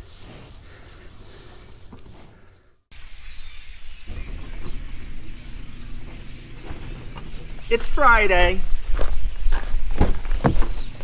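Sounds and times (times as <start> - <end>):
cattle rustling in hay: 0.0 - 2.3
small birds chirping: 2.4 - 11.0.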